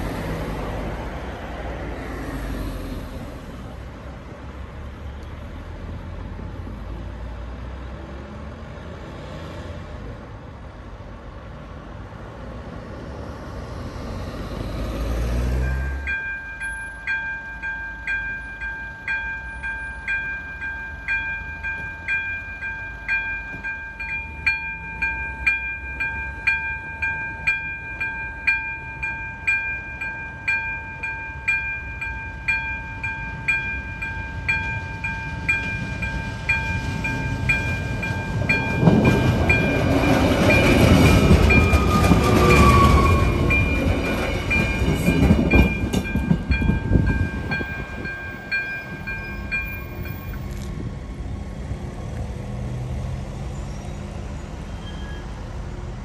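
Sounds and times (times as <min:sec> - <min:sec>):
railcar rumbling and clattering: 0:00.0 - 0:56.0
level crossing warning bell: 0:15.4 - 0:50.4
train brake squeal: 0:41.6 - 0:43.9, 0:53.5 - 0:55.5.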